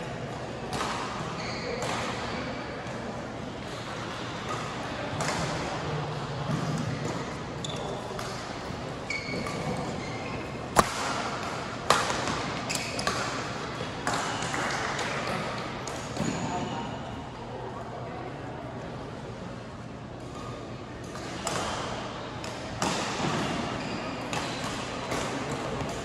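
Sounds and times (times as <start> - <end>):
court shoes squeaking: 0.6 - 17.3, 20.3 - 26.0
racket striking shuttlecock: 10.7 - 16.0.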